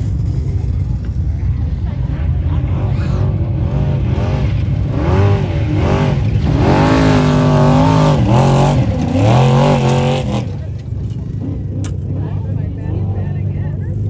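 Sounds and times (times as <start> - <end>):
truck engine revving hard: 2.3 - 12.4.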